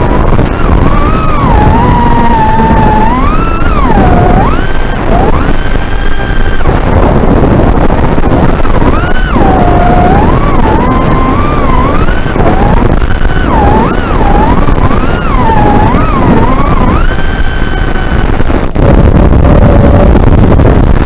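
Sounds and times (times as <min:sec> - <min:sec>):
drone motors whining: 0:00.0 - 0:21.0
wind rushing on microphone: 0:00.0 - 0:21.0.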